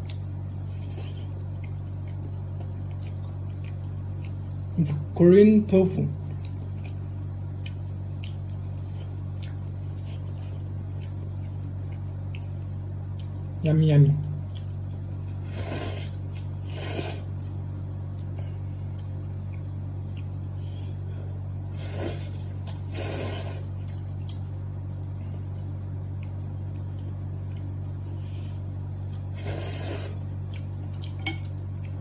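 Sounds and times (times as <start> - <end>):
steady low hum: 0.0 - 32.0
person slurping noodles: 15.5 - 17.3, 21.8 - 23.7, 29.4 - 30.2.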